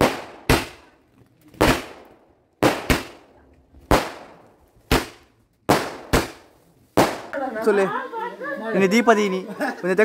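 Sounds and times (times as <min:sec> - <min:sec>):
firework bangs: 0:00.0 - 0:01.0, 0:01.6 - 0:07.4.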